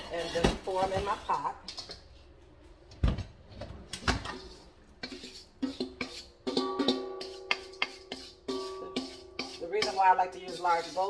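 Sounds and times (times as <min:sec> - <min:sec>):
spoon knocking on metal bowl: 0:05.6 - 0:10.1.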